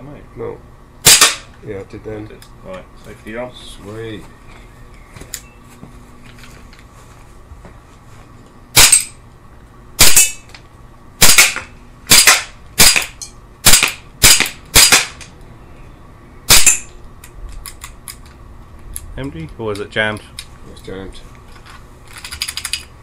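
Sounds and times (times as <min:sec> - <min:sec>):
air pistol shots: 0:01.0 - 0:01.5, 0:08.7 - 0:09.2, 0:10.0 - 0:10.5, 0:11.2 - 0:15.3, 0:16.5 - 0:16.9.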